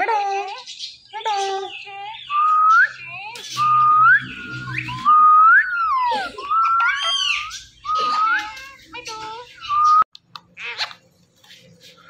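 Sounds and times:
parakeet whistling: 1.9s - 10.1s.

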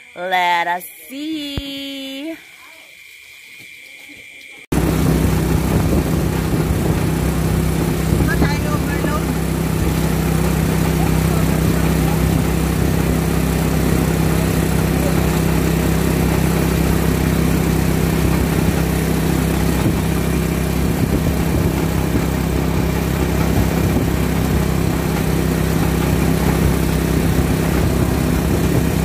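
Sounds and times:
road and wind noise: 4.7s - 10.8s, 17.6s - 29.0s
vehicle engine drone: 4.7s - 29.0s.

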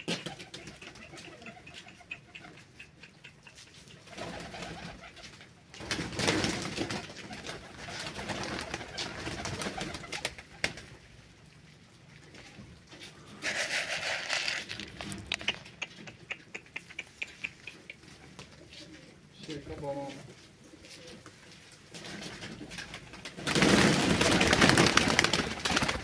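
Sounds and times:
pigeons cooing: 0.0s - 5.6s, 13.1s - 19.6s
rustling: 12.0s - 15.8s.

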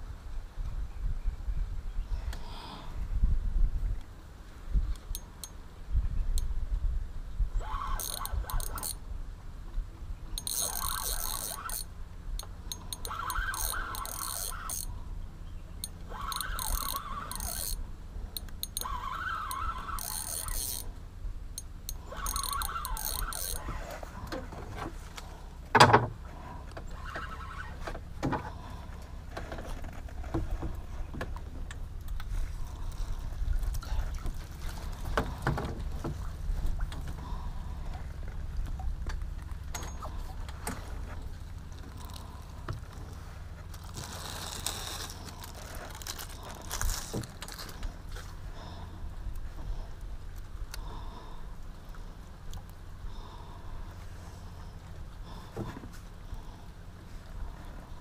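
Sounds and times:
fishing reel winding: 7.6s - 9.0s, 10.4s - 14.9s, 15.8s - 17.8s, 18.4s - 20.9s, 21.6s - 23.8s, 41.9s - 42.5s, 43.8s - 47.8s.

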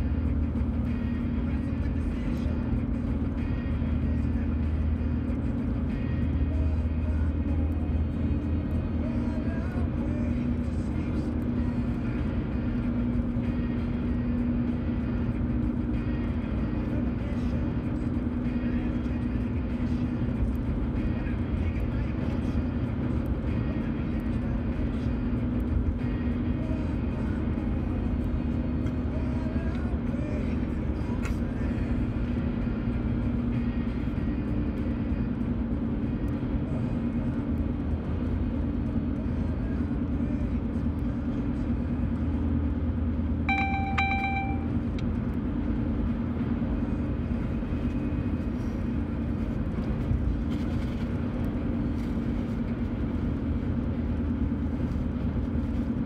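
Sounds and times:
car road and engine noise: 0.0s - 56.0s
flat beep: 43.5s - 44.8s.

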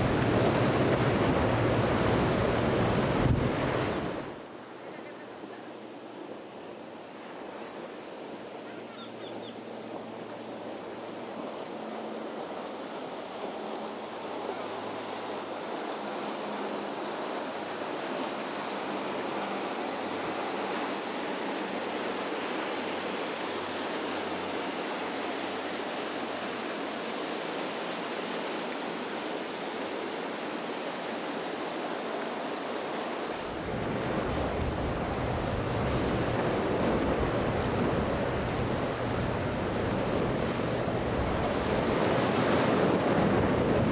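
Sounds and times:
waves and surf: 0.0s - 43.9s
wind buffeting microphone: 33.4s - 43.9s.

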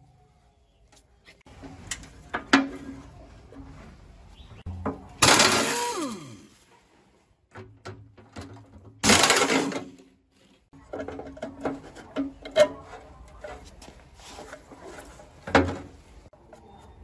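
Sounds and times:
pneumatic impact wrench burst: 5.2s - 6.5s.

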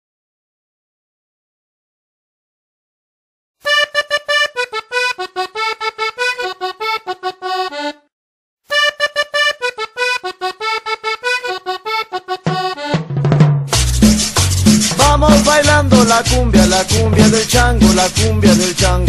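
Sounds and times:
accordion melody: 3.6s - 8.1s, 8.7s - 19.0s
drums: 12.5s - 19.0s.

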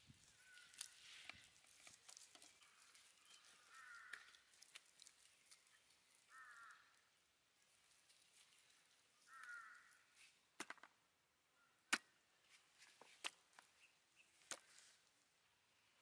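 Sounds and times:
faint crow cawing: 0.2s - 5.2s, 6.1s - 7.1s, 9.2s - 10.1s.

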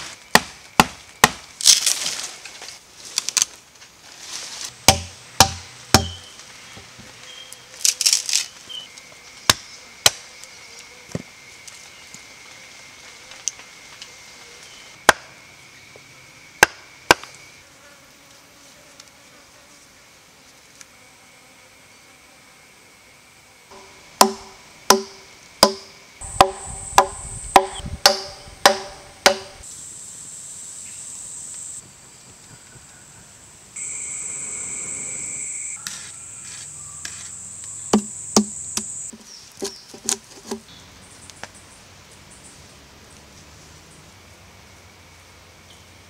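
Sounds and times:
cicadas buzzing: 0.0s - 3.6s, 4.5s - 46.0s
axe chopping wood: 0.3s - 1.5s, 4.8s - 6.3s, 16.6s - 17.3s, 23.7s - 29.6s, 37.9s - 38.9s.

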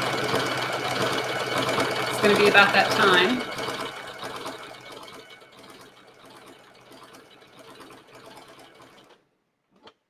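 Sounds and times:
sewing machine stitching: 0.0s - 10.0s.

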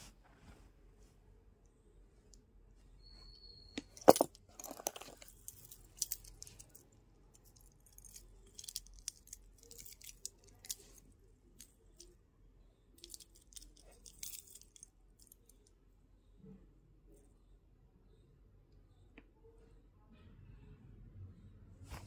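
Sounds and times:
metal earrings clinking on cloth: 3.2s - 12.2s, 13.0s - 15.7s.

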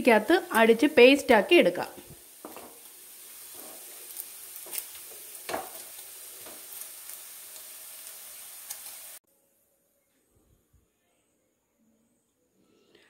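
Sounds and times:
masala sizzling in a pan: 0.0s - 9.3s.

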